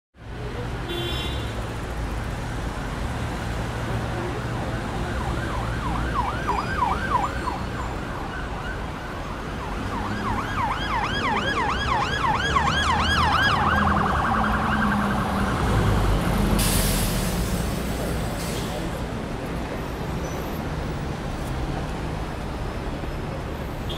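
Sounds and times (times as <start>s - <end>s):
street traffic rumbling: 0.2s - 23.9s
siren yelping: 5.1s - 15.7s
short hiss: 16.6s - 17.6s.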